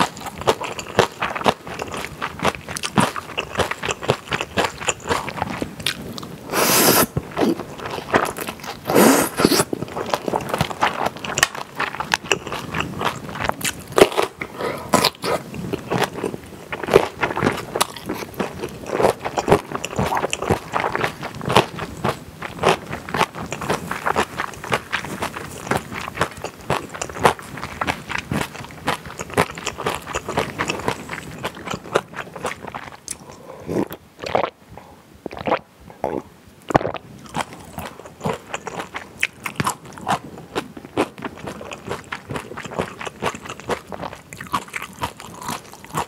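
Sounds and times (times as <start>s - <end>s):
wet chewing and crunching: 0.0s - 34.6s, 35.3s - 46.0s
noodle slurps: 6.5s - 7.7s, 8.9s - 9.8s.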